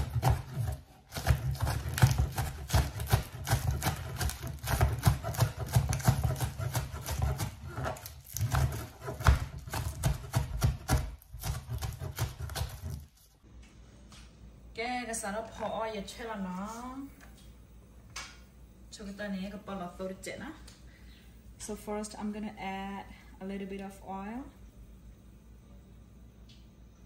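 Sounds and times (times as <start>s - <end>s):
knife chopping on plastic board: 0.0s - 13.1s.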